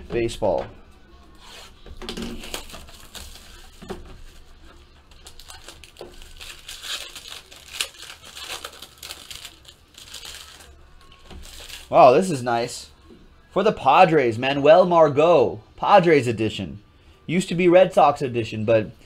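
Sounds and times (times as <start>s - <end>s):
foil wrapper crinkling and tearing: 1.4s - 4.4s, 5.0s - 12.0s.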